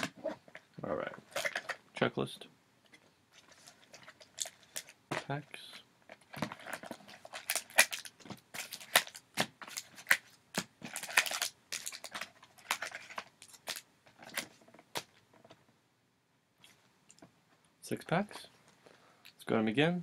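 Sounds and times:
foil wrappers crinkling: 6.3s - 14.6s.

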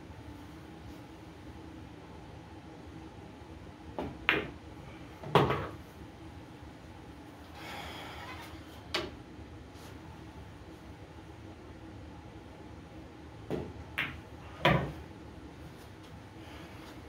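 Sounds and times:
pool balls clicking: 13.5s - 15.0s.

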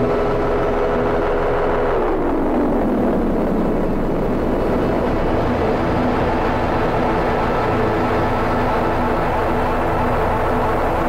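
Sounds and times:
grainy electronic drone: 0.0s - 11.0s.

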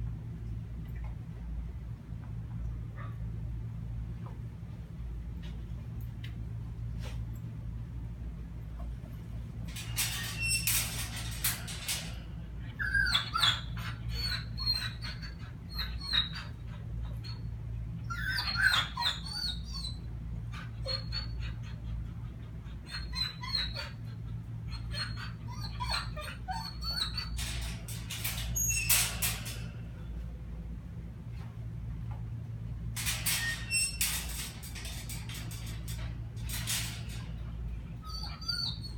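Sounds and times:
steady low hum: 0.0s - 12.9s, 19.6s - 38.9s
dog whining and whimpering: 9.8s - 29.8s, 33.0s - 37.4s, 38.0s - 38.9s.

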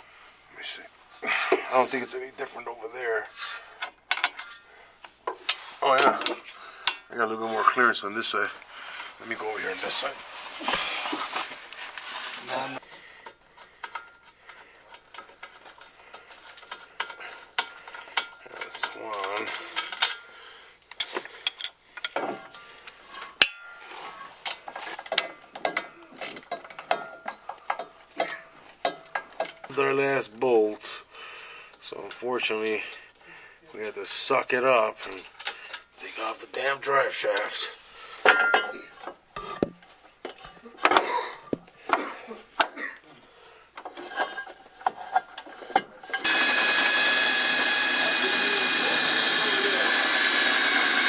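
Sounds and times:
cordless drill running: 46.2s - 51.0s.

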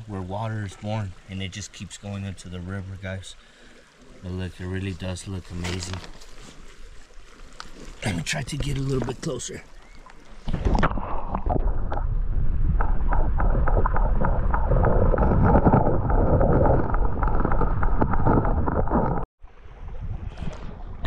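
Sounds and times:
wind rumbling on microphone: 10.4s - 21.0s.

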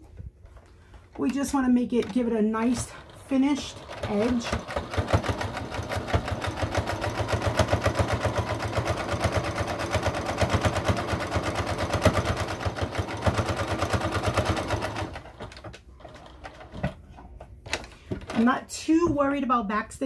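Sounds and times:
sewing machine stitching: 2.0s - 17.0s.

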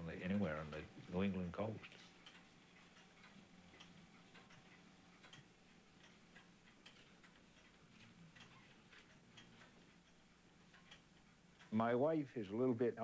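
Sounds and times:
clock ticking: 0.0s - 13.0s.

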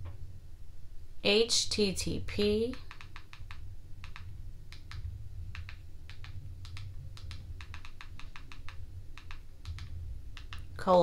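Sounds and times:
steady low hum: 0.0s - 11.0s
remote control buttons clicking: 2.7s - 10.7s.

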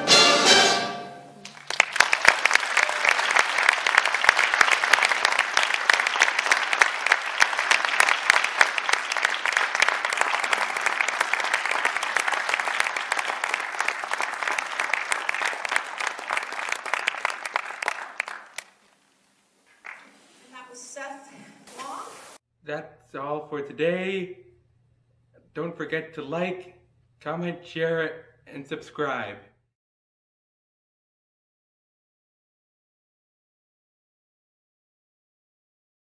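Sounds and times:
audience applauding: 1.4s - 18.8s, 19.7s - 20.1s.

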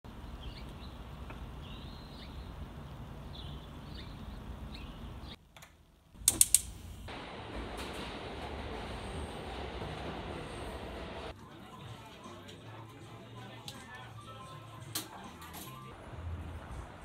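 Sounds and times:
gas stove igniter clicking: 6.2s - 6.9s
gas rushing noise: 6.3s - 11.3s.

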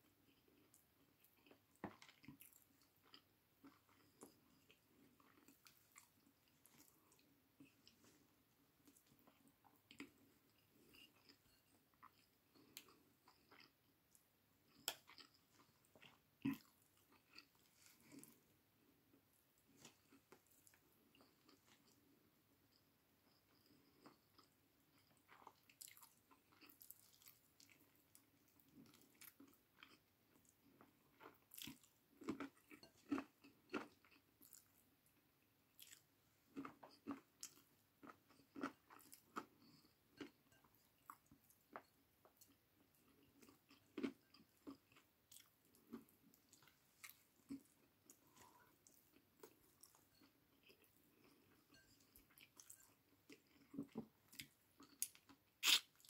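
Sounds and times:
person chewing: 0.2s - 18.9s, 23.3s - 56.0s.

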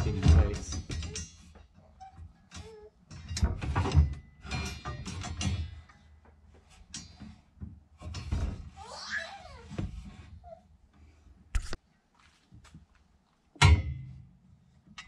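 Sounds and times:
steel bars clanking on wooden frame: 0.0s - 8.8s, 13.6s - 15.0s.

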